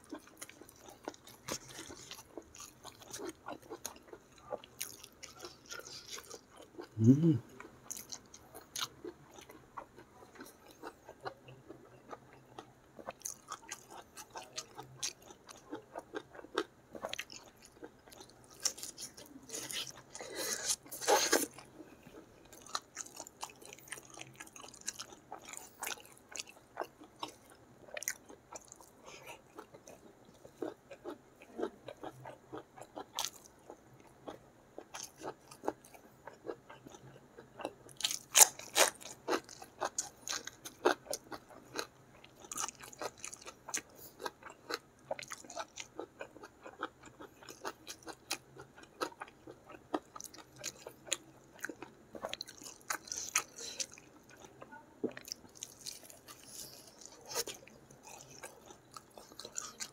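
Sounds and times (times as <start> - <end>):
low vocal hum: 7.0 - 7.6.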